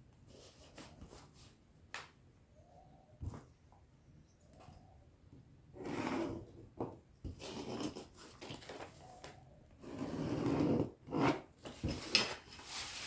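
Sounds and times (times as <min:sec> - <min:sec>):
metal ruler scraping: 0:05.8 - 0:06.5, 0:09.8 - 0:12.2
paper rustling: 0:11.6 - 0:13.0.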